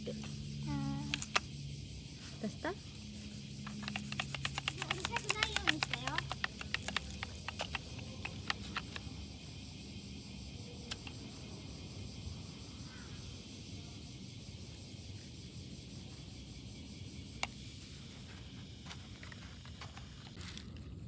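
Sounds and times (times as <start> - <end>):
light clicks: 10.9 - 11.3.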